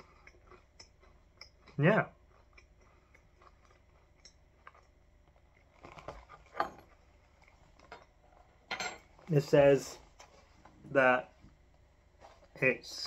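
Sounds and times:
chewing crunchy granola: 0.0s - 8.5s.

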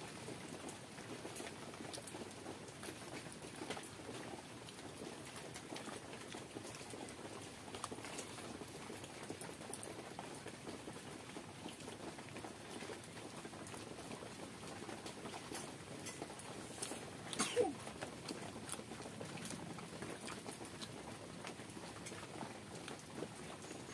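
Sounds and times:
chewing: 4.7s - 8.6s, 14.7s - 23.9s
wet clicks and smacks: 16.1s - 22.2s.

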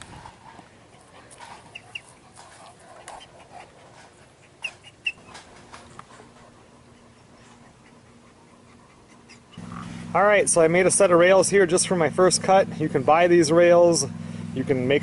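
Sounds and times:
dog sniffing: 0.1s - 10.1s.

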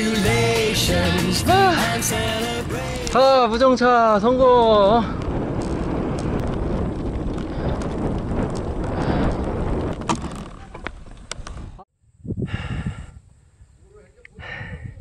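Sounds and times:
wind rushing over microphone: 2.1s - 15.0s
bike rolling noise: 4.2s - 11.8s.

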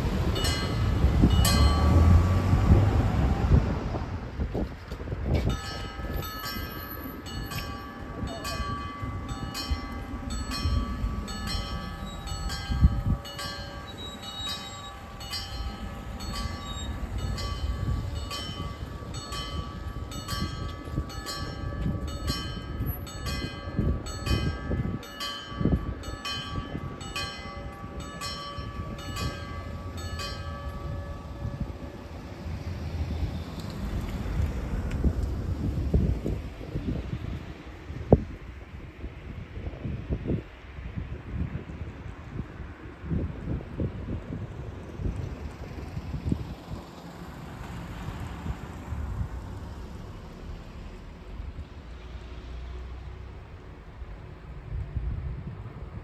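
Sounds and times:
level crossing warning bells: 0.0s - 3.2s, 5.4s - 33.0s
cars passing over crossing: 0.0s - 56.0s.

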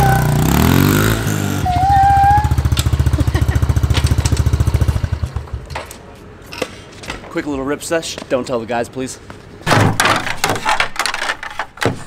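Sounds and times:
dirt bike engine puttering: 0.0s - 5.9s
short high squeal: 1.5s - 2.7s.

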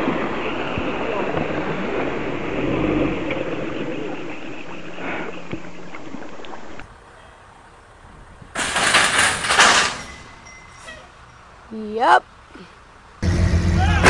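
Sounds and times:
truck wading through river: 0.0s - 8.0s
metal crash and scrape: 8.5s - 11.1s.

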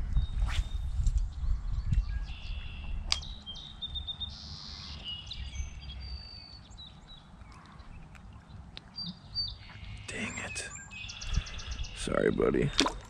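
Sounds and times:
small birds calling and trilling: 1.2s - 12.8s.

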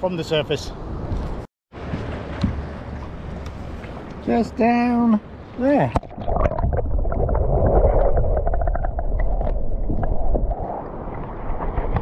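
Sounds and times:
underwater clicks and crackles: 5.9s - 12.0s.

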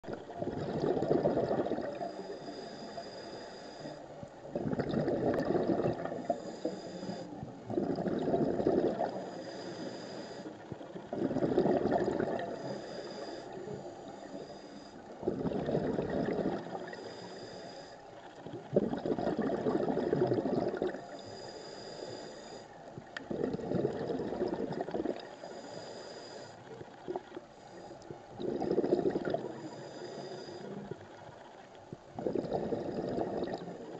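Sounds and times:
exhaled bubbles bursting: 0.0s - 2.0s, 4.5s - 6.3s, 7.7s - 9.2s, 11.1s - 12.6s, 15.2s - 16.9s, 18.4s - 21.1s, 23.2s - 25.3s, 28.4s - 29.6s, 32.1s - 33.9s
regulator hiss on inhale: 1.5s - 4.6s, 5.7s - 18.7s, 20.9s - 33.9s.

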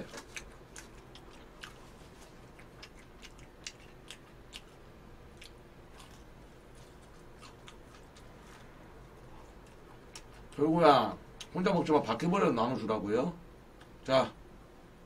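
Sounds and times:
person chewing food: 0.0s - 10.6s.

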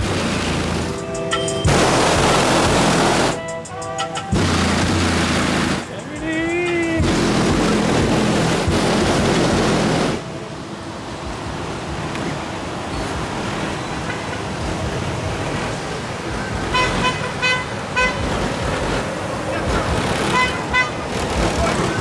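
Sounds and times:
street traffic noise: 0.0s - 22.0s
vehicle horn tooting: 13.8s - 14.6s, 16.7s - 18.4s, 19.7s - 21.1s.

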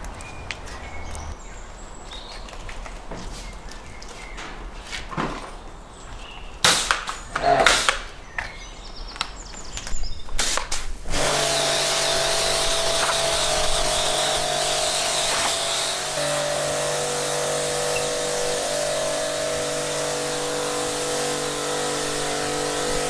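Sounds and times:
water jet hissing on concrete: 10.4s - 23.0s
pressure washer motor humming: 11.0s - 23.0s.

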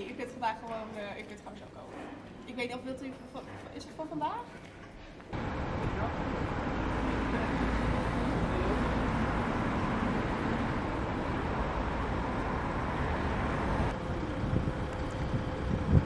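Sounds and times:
traffic rumble: 5.2s - 16.0s.

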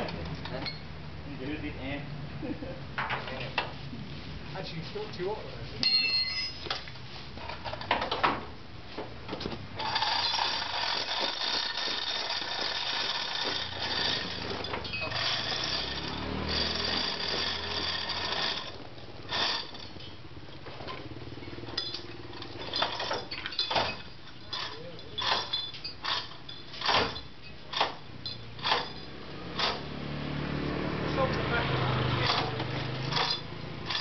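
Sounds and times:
metal clanks: 5.8s - 6.9s, 21.7s - 29.8s
rapid metallic rattle: 9.8s - 20.1s, 32.2s - 34.0s.

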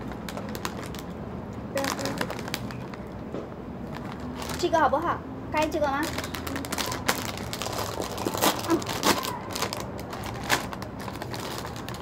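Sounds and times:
snack packet crinkling: 0.0s - 1.1s, 1.8s - 3.2s, 3.8s - 4.7s, 6.0s - 12.0s.

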